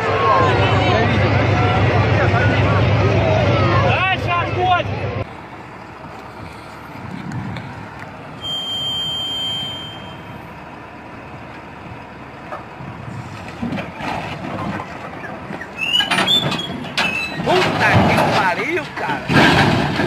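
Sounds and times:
truck engine running: 0.0 - 20.0
high steady tone: 8.4 - 10.5.

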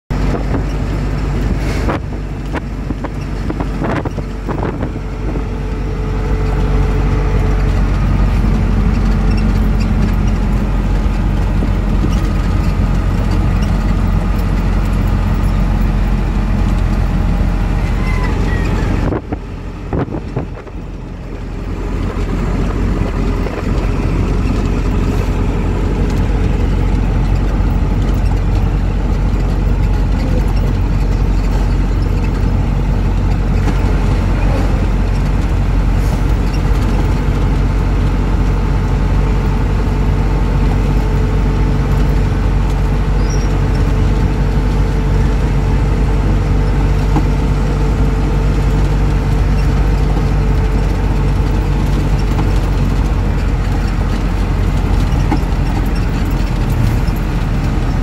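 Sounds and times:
vehicle engine and road drone: 0.0 - 58.0.

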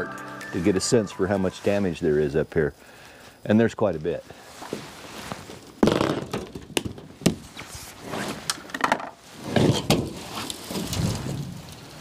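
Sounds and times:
sheet metal scraping and crumpling: 7.6 - 12.0.

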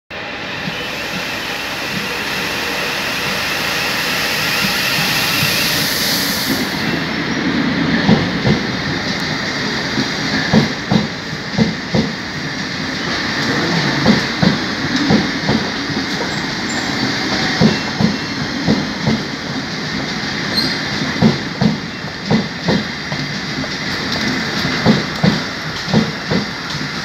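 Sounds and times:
train rumble: 0.1 - 27.0
high hiss: 0.7 - 7.0
train wheels knocking on rail joints: 8.0 - 12.6, 13.4 - 27.0.

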